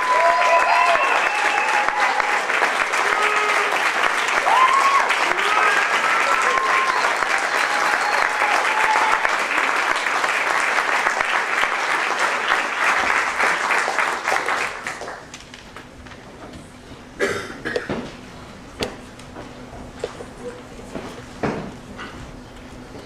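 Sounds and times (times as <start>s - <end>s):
audience applauding: 0.0s - 15.4s.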